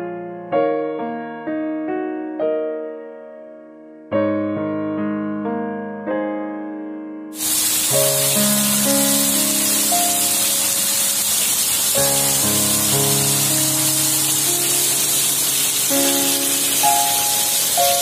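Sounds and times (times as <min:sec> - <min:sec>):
slow piano music: 0:00.0 - 0:18.0
heavy rain: 0:07.4 - 0:18.0.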